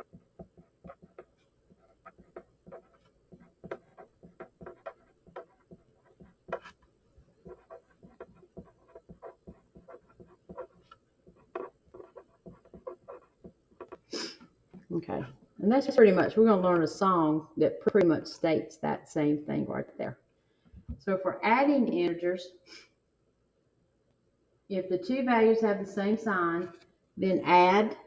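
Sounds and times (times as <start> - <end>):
pen writing on paper: 0.0 - 14.2.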